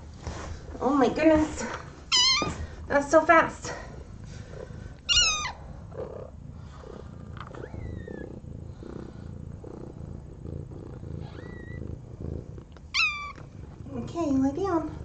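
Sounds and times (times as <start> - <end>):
cat purring: 0.0 - 15.0
cat mewing: 2.1 - 2.6, 5.1 - 5.6, 11.2 - 11.8, 12.9 - 13.4
faint thin squeak: 2.1 - 2.6.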